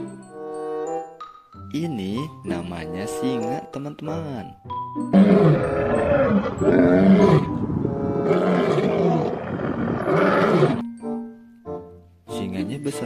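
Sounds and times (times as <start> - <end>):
lions roaring: 5.2 - 10.8.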